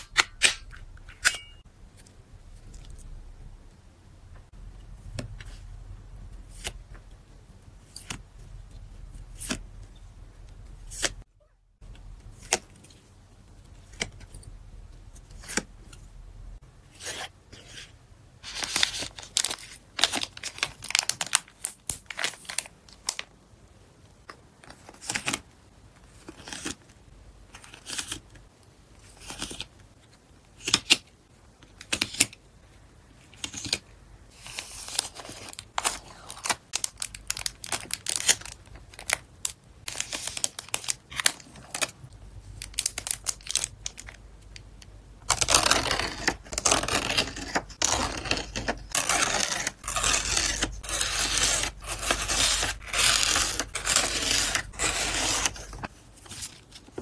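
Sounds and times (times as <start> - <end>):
cards and packaging rustling: 33.3 - 44.2, 45.3 - 57.0.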